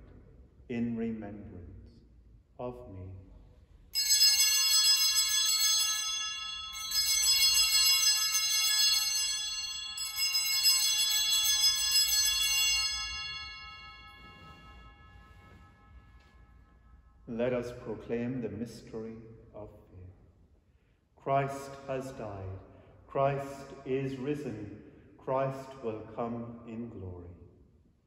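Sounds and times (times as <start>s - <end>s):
bell ringing: 4.0s - 17.4s.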